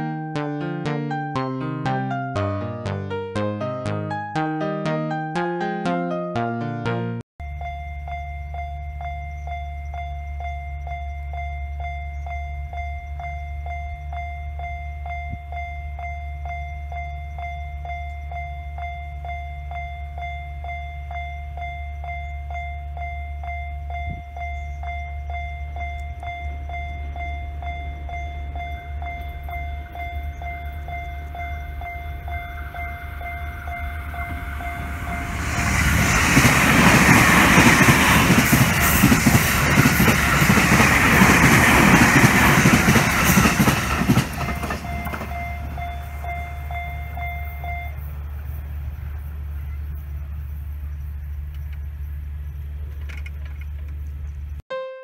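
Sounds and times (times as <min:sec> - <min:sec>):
level-crossing warning bell: 0:07.4 - 0:48.7
train rumble and wheel noise: 0:07.6 - 0:54.6.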